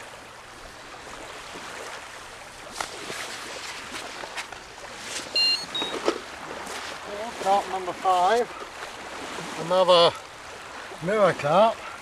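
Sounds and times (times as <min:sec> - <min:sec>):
small waves lapping on shore: 0:00.0 - 0:12.0
water slaps: 0:01.1 - 0:11.1.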